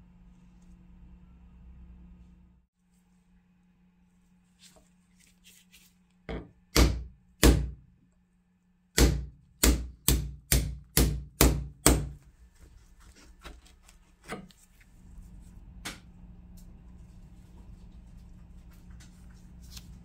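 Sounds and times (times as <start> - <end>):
hammer striking wooden handle: 6.3 - 7.8, 9.0 - 12.1.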